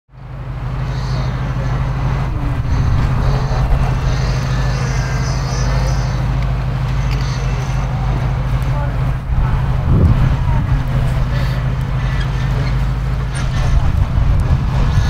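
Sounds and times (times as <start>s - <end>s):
off-road vehicle engine droning: 0.1s - 15.0s.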